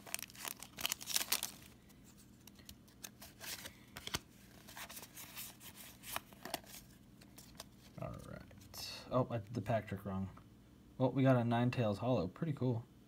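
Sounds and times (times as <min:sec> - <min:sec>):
foil wrapper tearing and crinkling: 0:00.0 - 0:01.8
cards rustling and clicking: 0:00.0 - 0:08.7.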